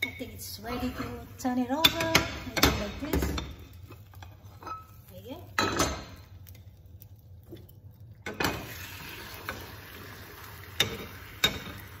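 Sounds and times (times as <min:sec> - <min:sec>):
omelette sizzling in frying pan: 0:03.6 - 0:12.0.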